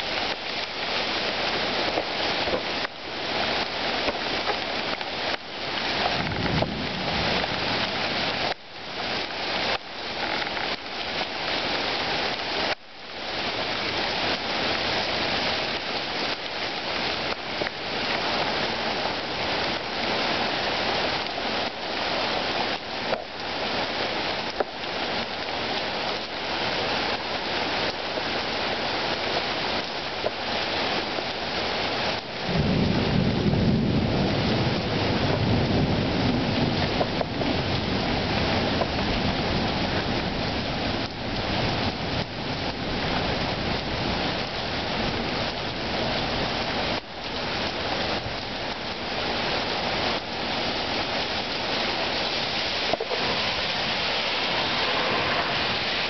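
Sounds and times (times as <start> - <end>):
heavy rain hissing: 0.0 - 56.0
thunder rumbling: 6.0 - 8.6, 32.4 - 47.0, 52.6 - 56.0.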